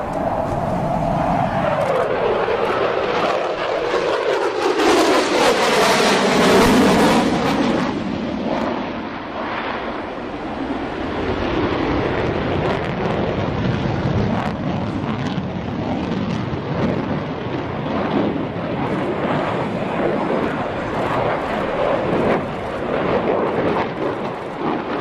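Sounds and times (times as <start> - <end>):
falling jet whine: 0.0 - 15.2
jet engines roaring: 0.0 - 25.0.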